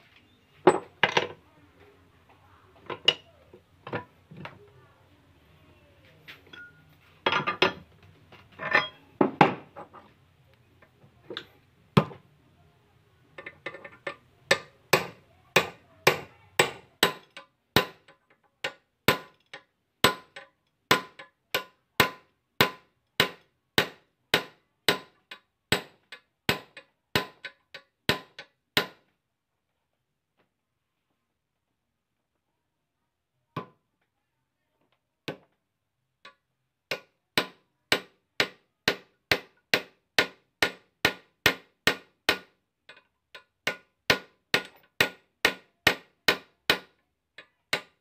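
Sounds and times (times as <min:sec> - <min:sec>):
metal knocks and clinks: 0:06.5 - 0:07.9, 0:08.6 - 0:10.1
hammer striking steel punch: 0:14.5 - 0:18.0, 0:20.0 - 0:25.1.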